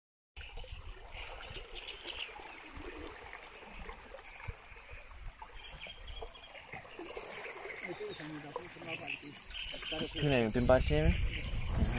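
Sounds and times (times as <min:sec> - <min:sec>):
small birds chirping: 0:00.4 - 0:03.0, 0:03.6 - 0:11.9
water trickling and splashing: 0:00.4 - 0:11.9.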